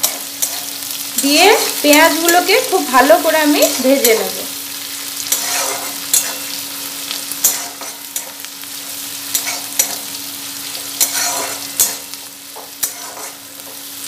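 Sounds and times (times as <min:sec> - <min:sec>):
onions sizzling in oil: 0:00.0 - 0:14.0
spatula scraping metal pan: 0:05.2 - 0:06.6, 0:07.4 - 0:08.4, 0:09.3 - 0:10.0, 0:10.7 - 0:13.8.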